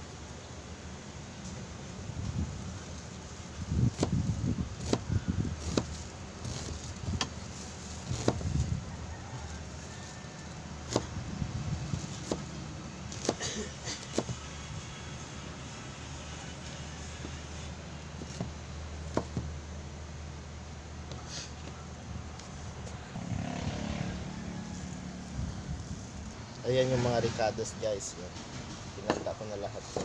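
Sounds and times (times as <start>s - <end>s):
wind rumble on microphone: 2.0s - 2.9s, 3.5s - 7.4s, 8.0s - 9.6s, 11.0s - 12.4s, 23.2s - 26.4s.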